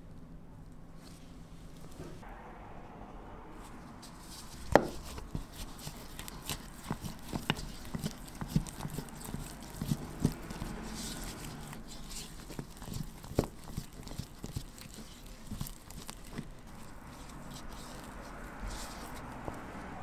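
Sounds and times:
spatula mixing thick paste: 4.0s - 20.0s.

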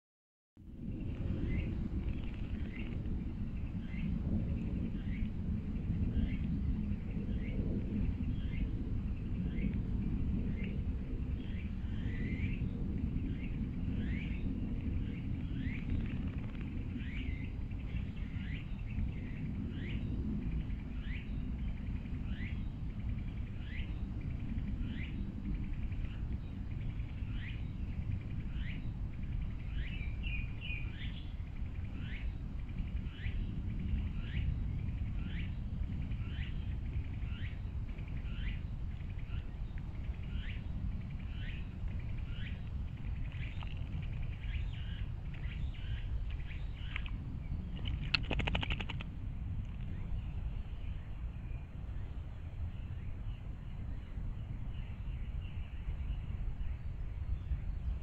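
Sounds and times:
steady low rumble: 0.6s - 58.0s
bird twitter: 11.4s - 49.0s.

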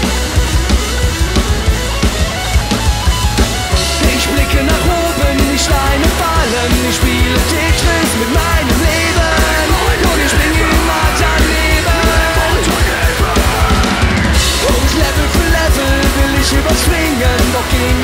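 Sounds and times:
punk rock band playing live: 0.0s - 18.0s.

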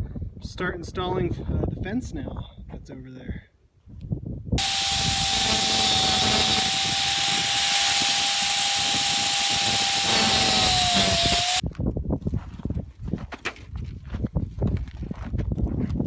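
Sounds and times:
angle grinder cutting wire: 4.6s - 11.6s.

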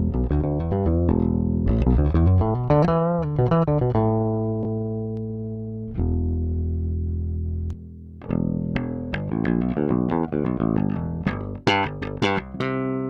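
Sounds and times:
electric bass notes: 0.0s - 13.0s.

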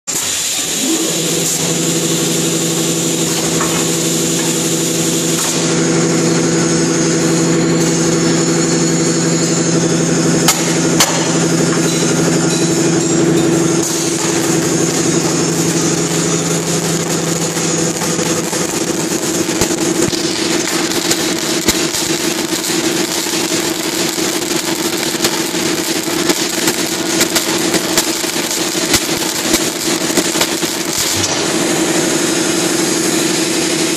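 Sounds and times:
welding machine humming: 0.1s - 33.9s
crackling and spitting sparks: 13.6s - 31.9s.

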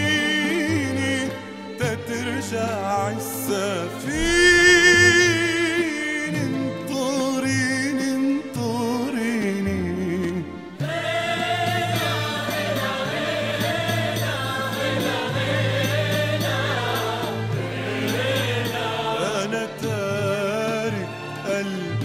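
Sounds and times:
choir singing held notes: 4.1s - 5.7s, 10.8s - 19.9s.

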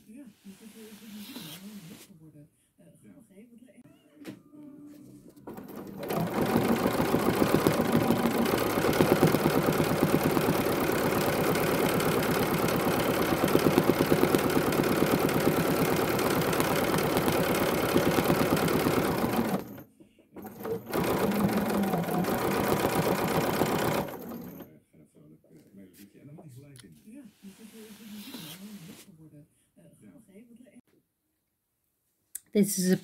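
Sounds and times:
sewing machine stitching fast: 5.5s - 24.7s.

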